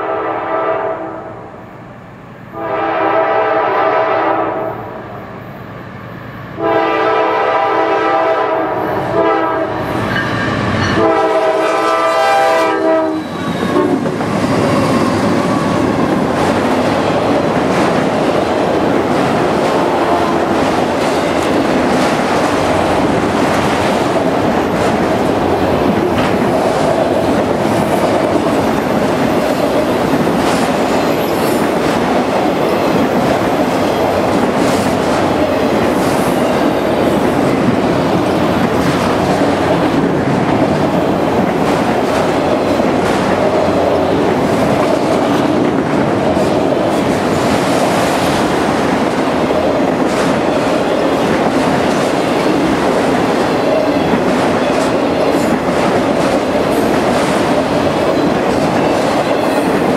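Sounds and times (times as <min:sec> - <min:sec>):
train air horn blasts: 0:00.0 - 0:01.5, 0:02.5 - 0:05.0, 0:06.6 - 0:14.1, 0:19.8 - 0:20.5
train rolling rumble and clickety-clack: 0:00.0 - 0:59.9.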